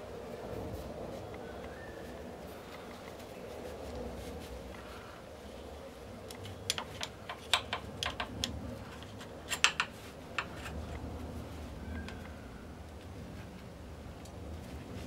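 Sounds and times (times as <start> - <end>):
light clicks and taps on metal: 6.2 - 11.0.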